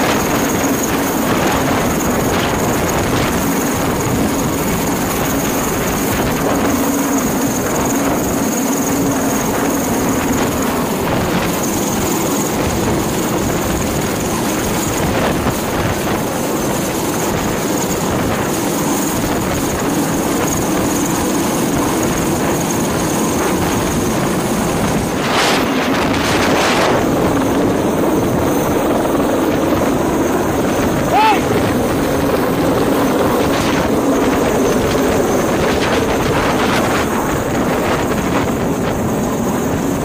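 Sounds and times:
helicopter rotor and engine: 0.0s - 40.0s
high whine: 19.5s - 40.0s.

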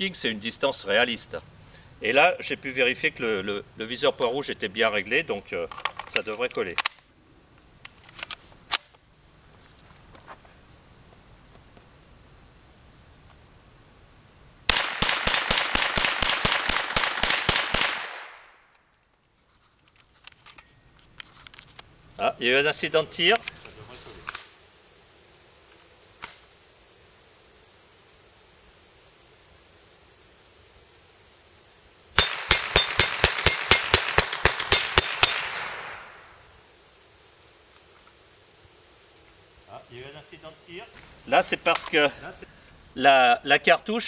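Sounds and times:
gunshot echo: 14.7s - 18.4s, 32.2s - 36.4s
rifle rapid fire: 14.7s - 18.5s, 32.2s - 36.3s.

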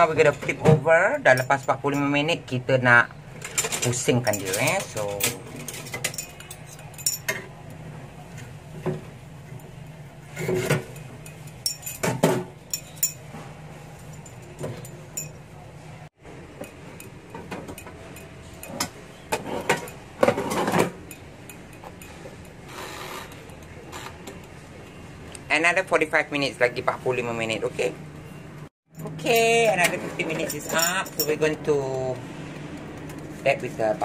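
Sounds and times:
metal utensils clinking on wire rack: 3.4s - 7.5s, 10.4s - 13.3s, 29.0s - 31.5s.

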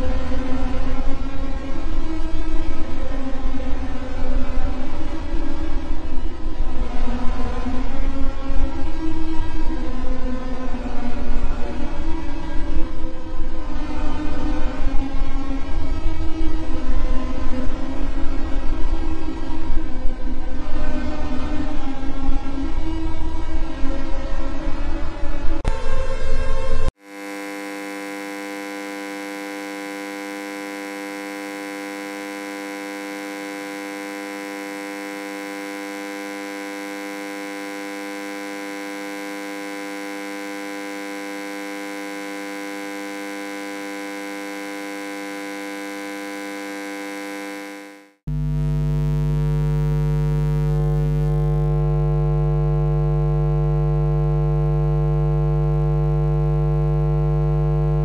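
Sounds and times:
deep electrical hum: 27.0s - 58.0s
electrical buzzing hum: 27.0s - 58.0s.

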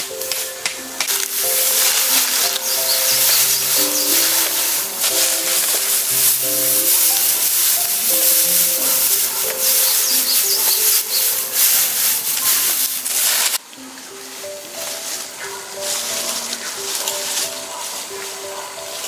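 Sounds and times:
fish sizzling over fire: 0.0s - 13.6s
slow melodic background music: 0.0s - 19.0s.

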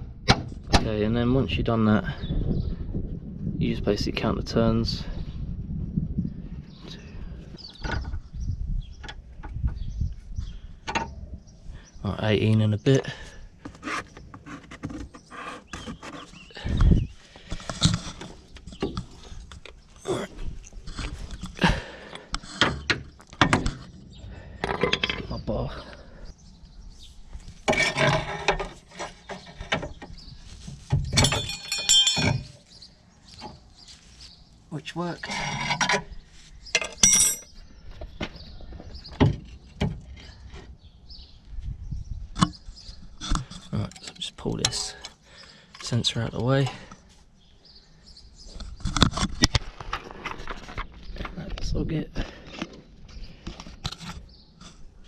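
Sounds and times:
metal tools knocking on car parts: 31.0s - 32.5s.

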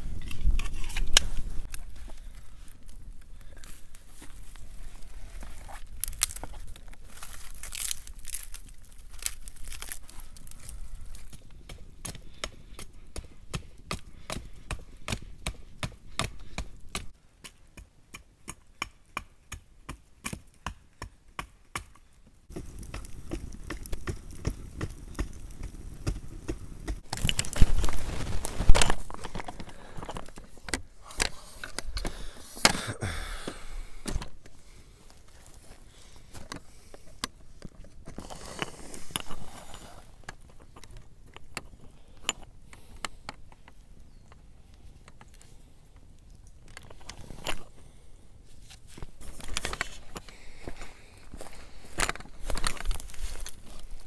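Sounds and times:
fire crackling and popping: 0.0s - 17.2s, 18.4s - 48.0s, 49.0s - 54.0s
rustling: 0.0s - 17.2s, 22.5s - 32.7s, 43.1s - 54.0s.

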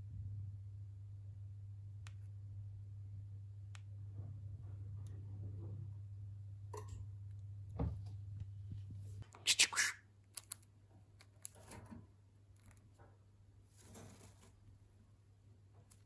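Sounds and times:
low steady hum: 0.0s - 9.3s
harsh burst of bird calls: 9.5s - 10.0s.

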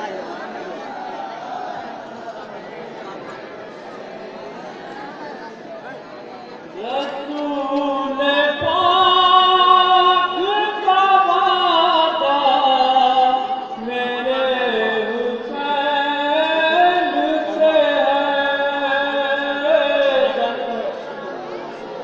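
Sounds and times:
devotional singing: 6.7s - 21.4s.

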